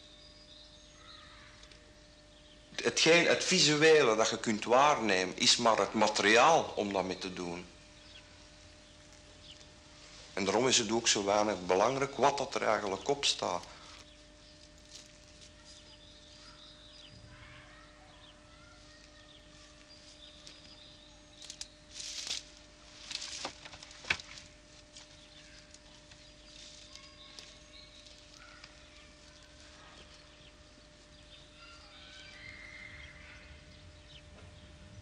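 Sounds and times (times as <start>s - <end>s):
faint bird chirps: 0.0s - 2.8s, 13.0s - 22.0s, 25.0s - 34.8s
steady low hum: 0.0s - 35.0s
wooden planks rustling and scraping: 21.4s - 30.4s.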